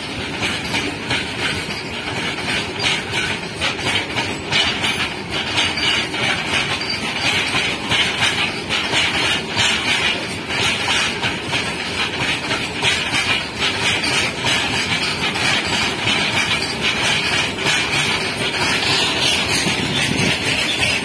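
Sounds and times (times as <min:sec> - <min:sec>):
freight train wheels rumbling on rail: 0:00.0 - 0:21.0
hissing wheel and rail noise: 0:00.0 - 0:21.0.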